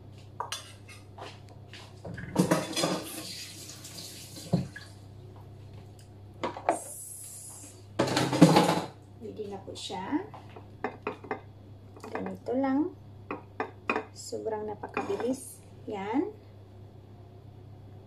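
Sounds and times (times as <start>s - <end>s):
metal bowl and dishes clinking: 2.2s - 3.2s, 15.0s - 15.4s.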